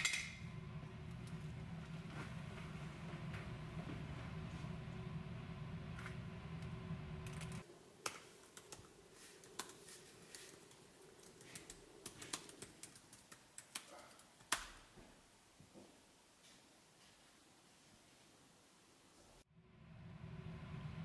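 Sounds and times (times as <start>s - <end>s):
low steady hum: 0.0s - 12.8s, 19.3s - 21.0s.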